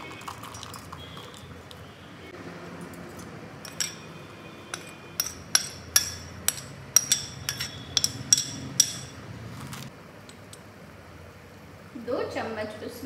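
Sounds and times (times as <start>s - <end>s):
spoon clinking on glass and metal: 0.2s - 1.4s, 3.0s - 4.1s, 4.7s - 9.2s.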